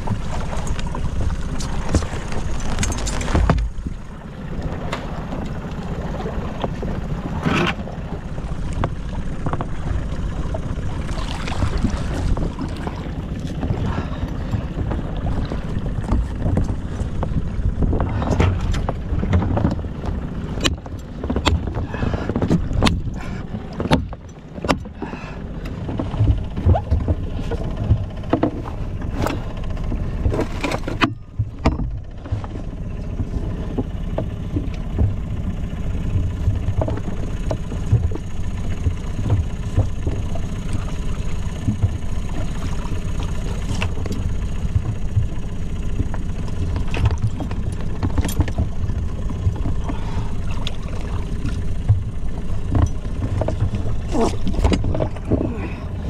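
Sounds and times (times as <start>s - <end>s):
wind and water rumble: 0.0s - 56.0s
sharp knocks and clicks: 16.0s - 25.0s, 25.6s - 35.2s, 36.2s - 40.8s, 43.2s - 50.0s.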